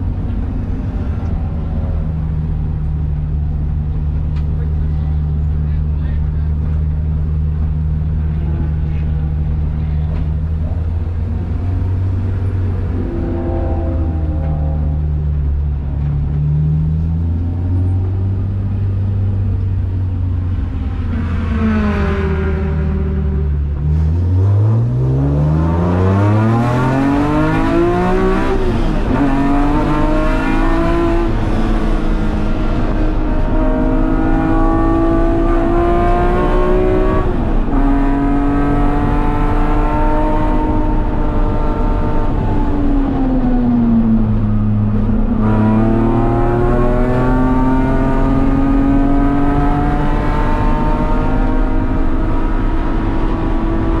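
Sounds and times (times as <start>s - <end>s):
car engine accelerating: 0.0s - 54.0s.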